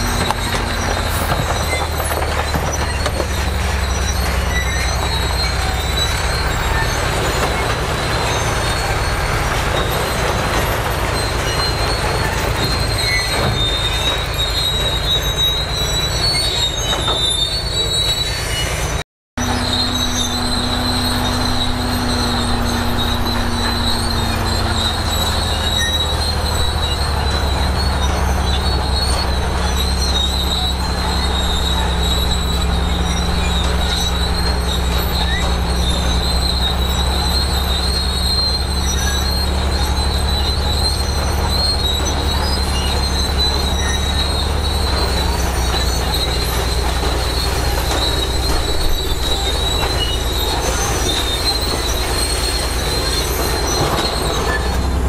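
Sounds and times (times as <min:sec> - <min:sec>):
bulldozer diesel engine running: 0:00.0 - 0:55.0
steel tracks squealing and clattering: 0:00.0 - 0:55.0.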